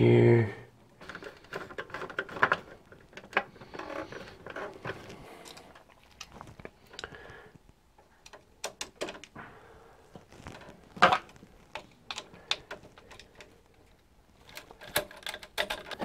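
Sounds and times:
wire clicking against metal box: 0:10.5 - 0:16.0.

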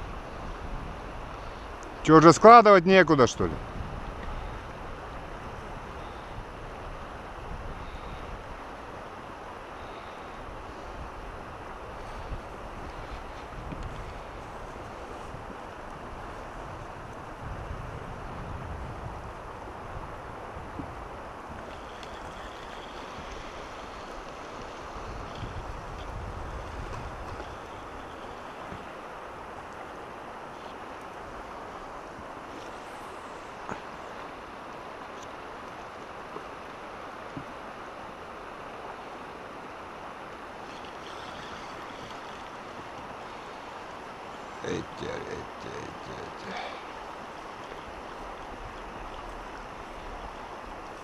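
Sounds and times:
wind rumbling on microphone: 0:00.0 - 0:02.1, 0:03.4 - 0:35.2
river current rushing: 0:00.0 - 0:51.0.

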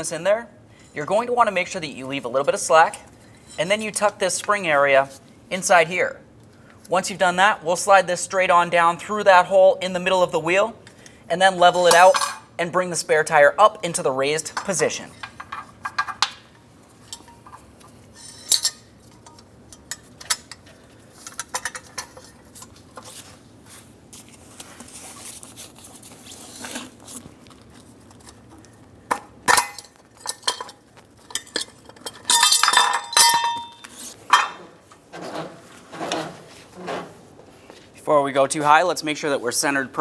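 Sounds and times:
metal cable clinking and rattling: 0:15.2 - 0:23.2, 0:29.4 - 0:34.7
short metallic ring: 0:32.3 - 0:34.5.

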